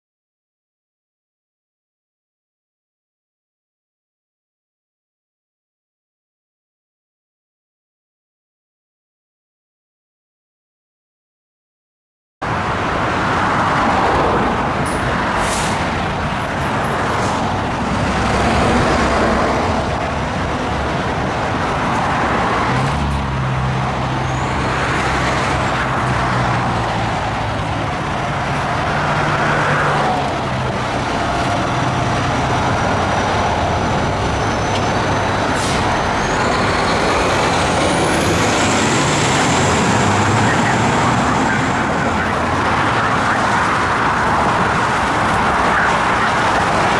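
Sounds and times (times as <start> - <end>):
fire engine diesel engine running: 23.8 - 46.9.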